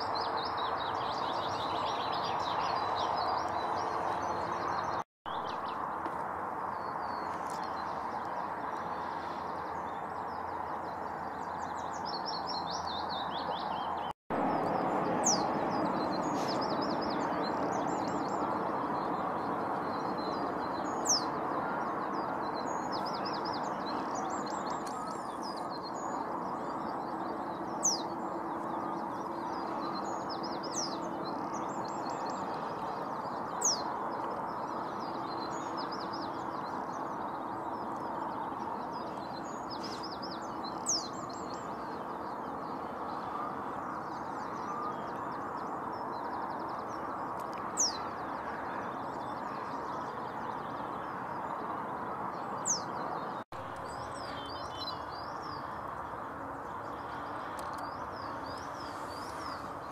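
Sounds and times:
small birds twittering: 0.0 - 59.9
reed bunting singing: 6.7 - 59.9.

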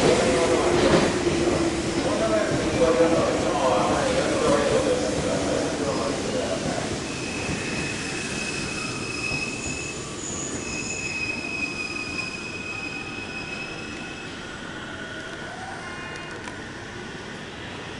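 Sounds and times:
train wheels squealing on rails: 4.2 - 16.8.

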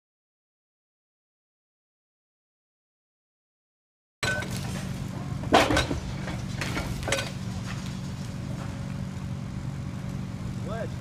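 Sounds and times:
concrete clanks and crashes: 4.2 - 4.9, 5.5 - 7.8
excavator diesel engine running: 4.2 - 11.0.

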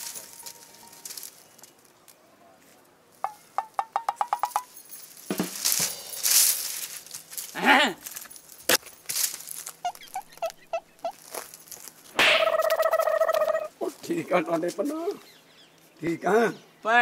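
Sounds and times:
dry branches rustling and snapping: 0.0 - 2.9, 5.2 - 10.5, 11.1 - 13.2.

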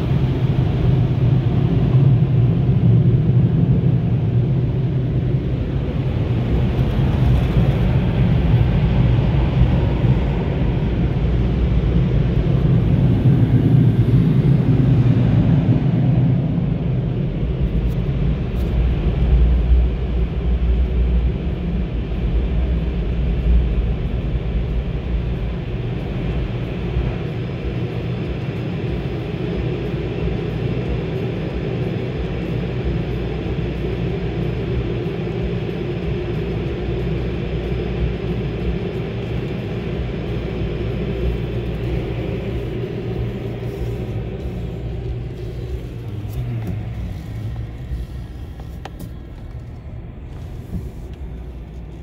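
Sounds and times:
car rumble inside cabin: 0.0 - 52.0.

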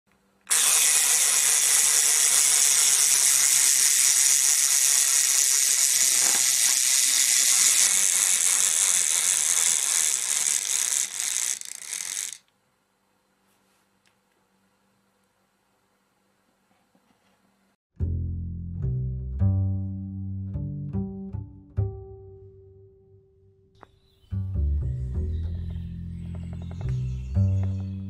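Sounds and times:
toy mechanism rattling: 0.5 - 12.5.

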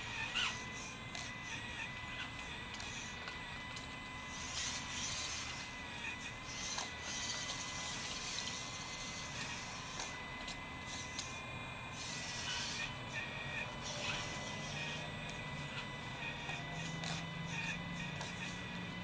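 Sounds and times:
hydraulic pump whining: 0.0 - 19.0.

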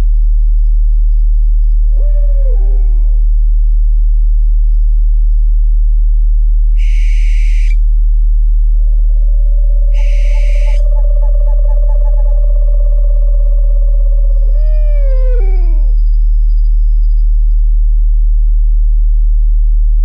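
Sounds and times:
loud steady low tone: 6.0 - 14.9
owl calls: 6.8 - 7.8, 8.8 - 16.0.

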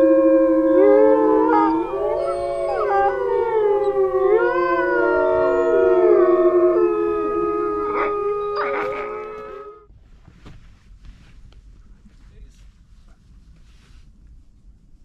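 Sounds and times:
dogs howling together: 0.0 - 9.8.

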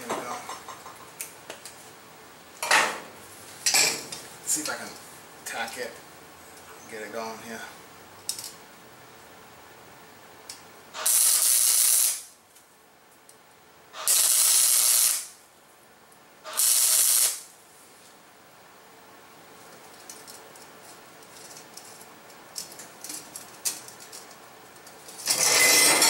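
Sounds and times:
welder arc crackling hiss: 10.5 - 12.4, 13.9 - 15.4, 16.4 - 18.1.

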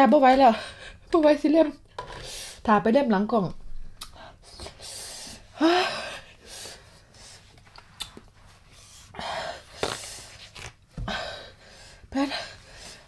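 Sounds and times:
woman gasping: 4.2 - 7.3, 9.1 - 10.2, 11.0 - 13.0.

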